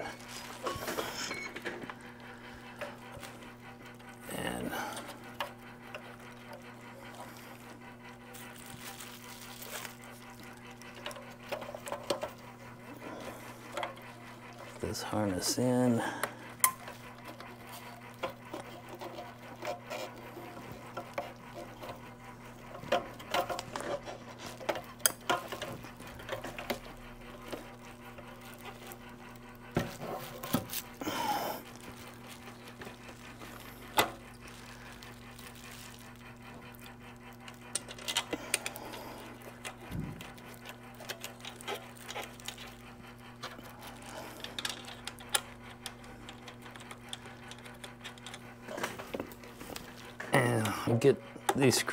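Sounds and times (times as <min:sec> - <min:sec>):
low steady hum: 0:00.0 - 0:51.9
plastic parts clicking and knocking: 0:22.7 - 0:27.7, 0:43.4 - 0:50.7.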